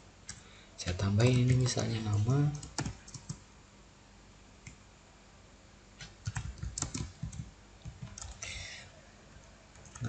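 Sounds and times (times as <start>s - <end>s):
keyboard typing: 1.3s - 3.4s, 6.0s - 8.6s, 9.4s - 10.0s.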